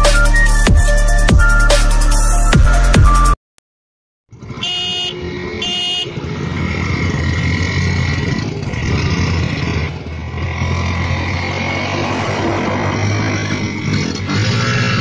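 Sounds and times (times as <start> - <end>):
motorcycle horn beeps: 4.5 - 6.2.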